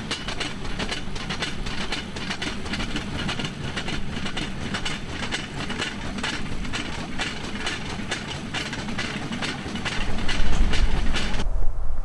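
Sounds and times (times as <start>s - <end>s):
rail joint clicks: 0.0s - 11.4s
steel wheels rolling on rails: 0.0s - 11.4s
low rumble: 10.2s - 12.0s.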